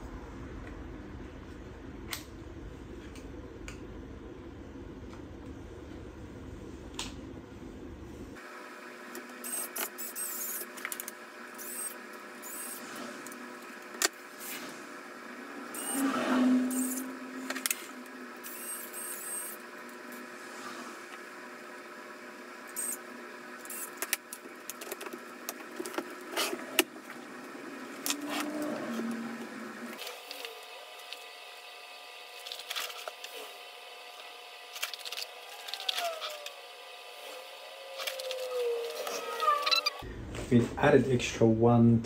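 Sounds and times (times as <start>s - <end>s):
steady background hum: 0.0s - 42.0s
brief tone: 15.7s - 17.5s.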